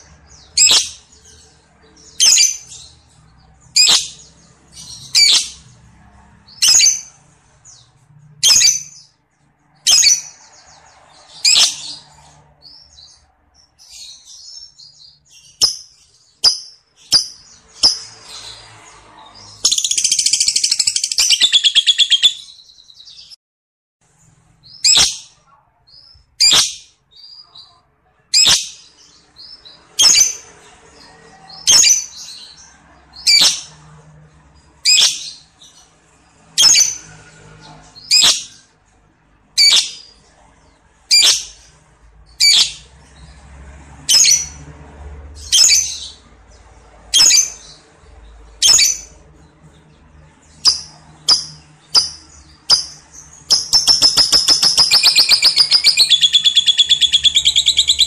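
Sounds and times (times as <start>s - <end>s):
bird rapid trilling chatter: 16.4s - 22.5s, 50.6s - 58.0s
bird shrill chirps: 19.4s - 23.3s, 50.6s - 58.0s.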